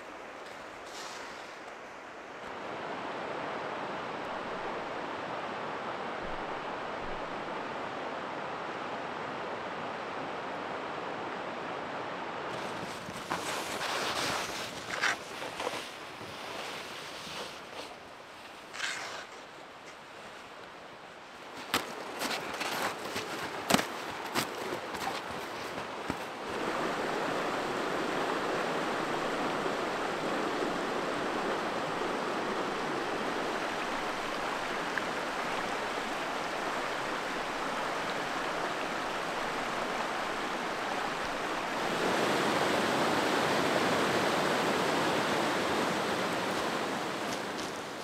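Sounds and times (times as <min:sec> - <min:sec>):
river water rushing over rocks: 0:19.4 - 0:48.0.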